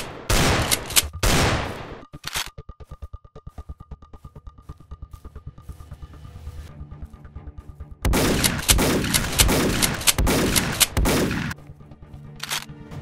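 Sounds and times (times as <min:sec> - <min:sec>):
rapid gunfire: 0:00.0 - 0:02.1, 0:08.1 - 0:11.6
faint background music: 0:00.3 - 0:13.0.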